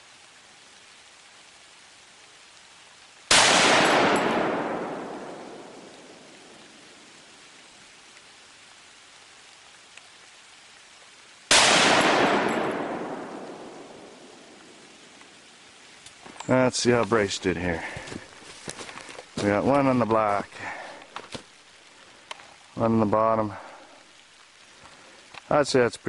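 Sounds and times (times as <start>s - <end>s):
rifle shots: 3.3s - 6.2s, 11.5s - 14.6s.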